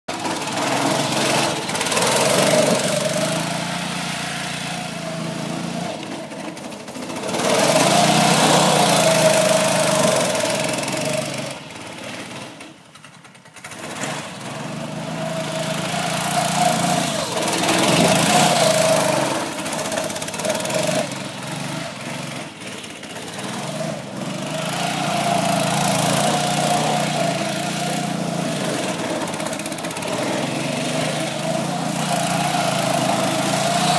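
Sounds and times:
buggy engine revving: 0:00.1 - 0:33.9.

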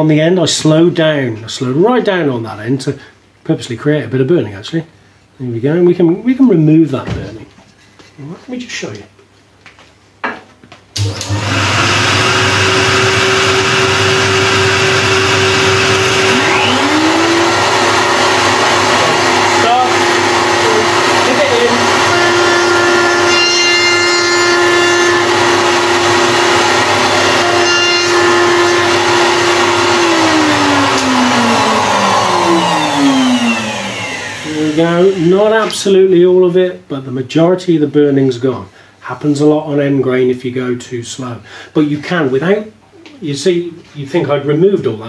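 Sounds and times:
router cutting wood: 0:11.0 - 0:35.8.

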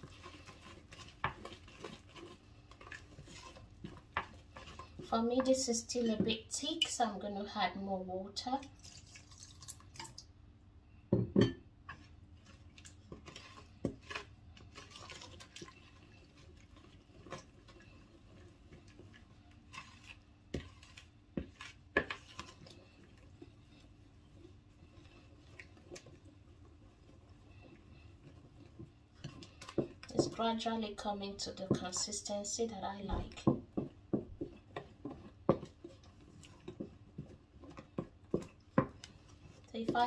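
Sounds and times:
wooden spoon stirring batter: 0:00.0 - 0:40.0
water pouring into batter: 0:08.7 - 0:10.2.

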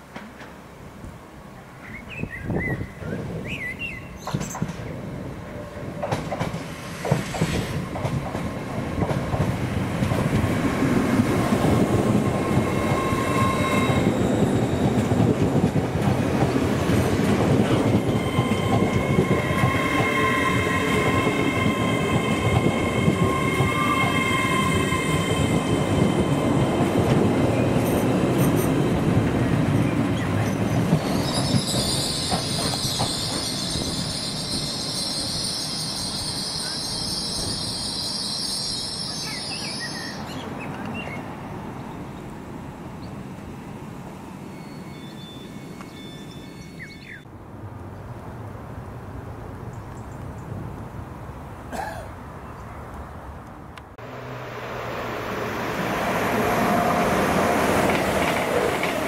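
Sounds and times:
train wheels on rails: 0:04.2 - 0:40.9, 0:54.0 - 0:59.0
high-pitched wheel squeals: 0:12.3 - 0:15.0, 0:18.0 - 0:26.7, 0:31.0 - 0:40.3, 0:44.4 - 0:47.2.

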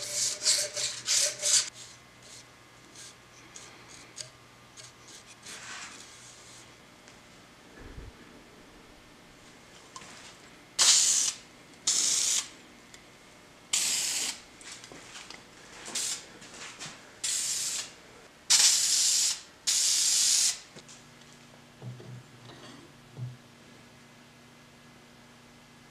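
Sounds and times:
aerosol spray hissing: 0:10.8 - 0:12.5, 0:13.8 - 0:14.4.

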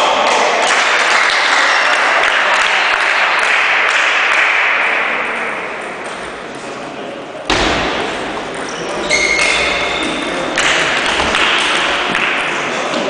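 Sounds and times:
spectators applauding: 0:00.0 - 0:04.9.

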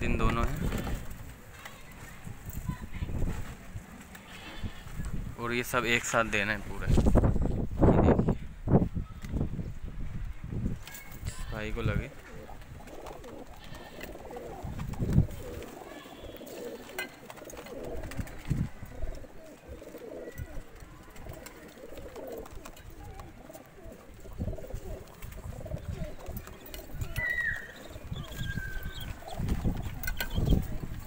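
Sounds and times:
pigeons cooing: 0:12.0 - 0:31.0.

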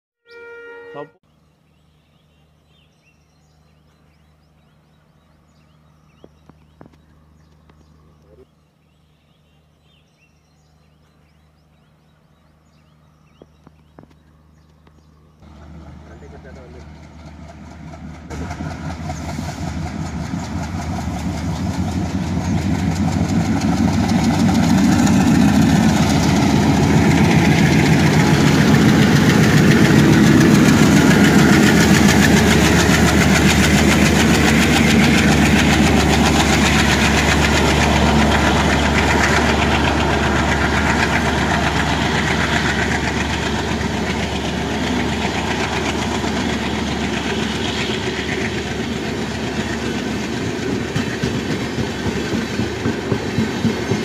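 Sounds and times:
diesel locomotives running hard: 0:14.5 - 0:54.0
train coaches rolling on rails: 0:15.4 - 0:54.0.

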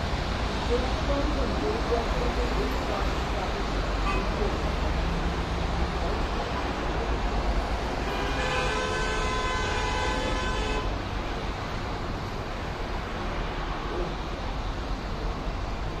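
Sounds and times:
highway traffic: 0:00.0 - 0:16.0
vehicle horn blast: 0:08.0 - 0:10.9.

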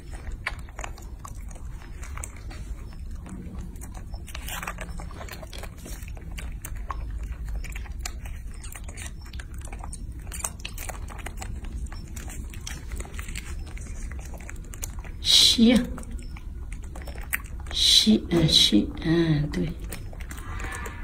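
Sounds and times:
monkeys sucking and smacking: 0:00.0 - 0:21.0.

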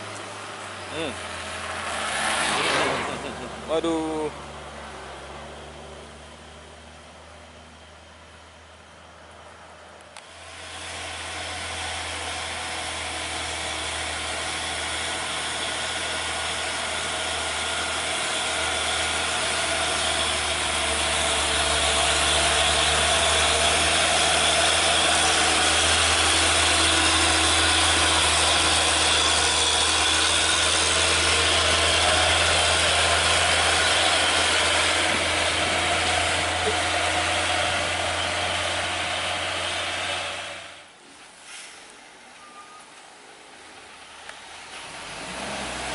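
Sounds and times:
diesel truck engine: 0:00.0 - 0:45.9
tyre hiss on wet road: 0:41.4 - 0:42.0.

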